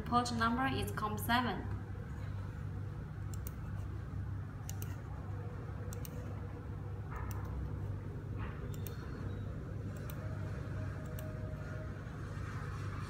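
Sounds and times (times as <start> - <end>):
steady low hum: 0.0 - 13.0
mouse buttons clicking: 8.7 - 9.0.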